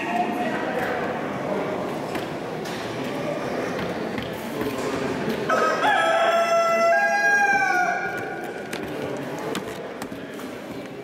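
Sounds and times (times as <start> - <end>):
rooster crowing: 5.5 - 8.2.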